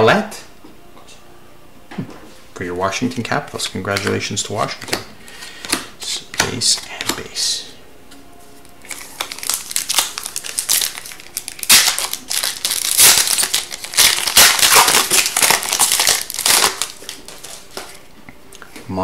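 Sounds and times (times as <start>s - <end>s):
foil wrapper crinkling: 8.6s - 18.0s.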